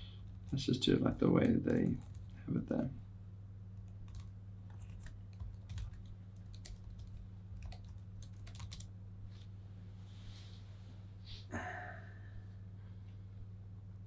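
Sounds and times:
laptop keyboard typing clicks: 1.4s - 2.3s, 3.8s - 8.9s.

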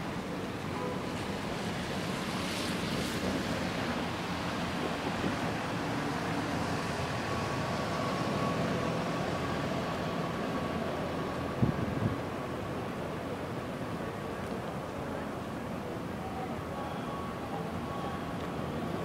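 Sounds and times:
traffic on wet roads: 0.0s - 19.0s
faint steady tone: 13.2s - 19.0s.

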